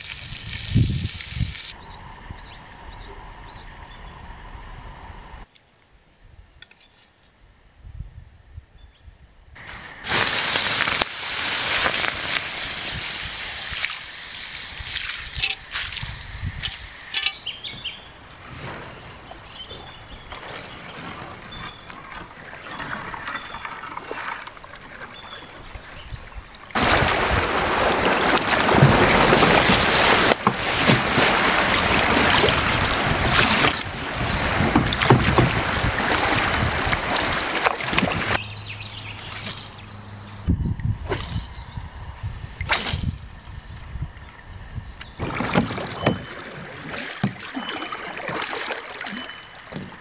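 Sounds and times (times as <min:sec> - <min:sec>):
water hissing on hot coals: 0:00.0 - 0:01.8, 0:09.6 - 0:17.2, 0:39.3 - 0:40.0, 0:41.1 - 0:41.9, 0:42.7 - 0:43.7
paddle strokes splashing in water: 0:09.6 - 0:17.3, 0:26.7 - 0:38.4, 0:45.2 - 0:50.0.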